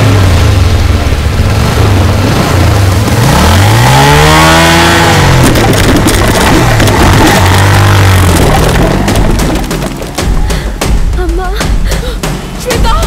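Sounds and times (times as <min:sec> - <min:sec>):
motorcycle engine revving: 0:00.0 - 0:10.5
plastic crates knocked over: 0:05.3 - 0:10.5.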